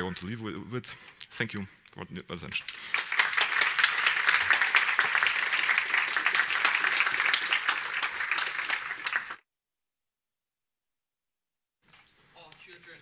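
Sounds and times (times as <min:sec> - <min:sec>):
audience applauding: 0:02.7 - 0:09.4.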